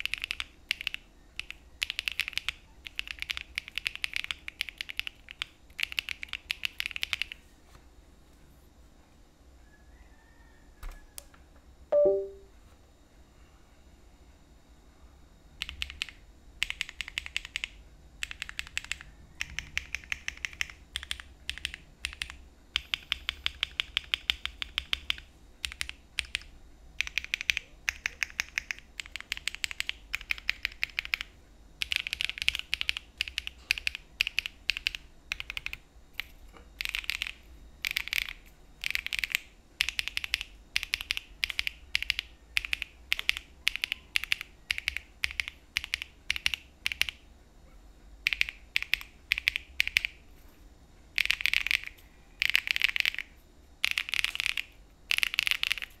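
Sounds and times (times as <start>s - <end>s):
mechanical keyboard typing: 0.0s - 7.4s, 12.0s - 12.4s, 15.6s - 47.2s, 48.2s - 50.2s, 51.1s - 56.0s.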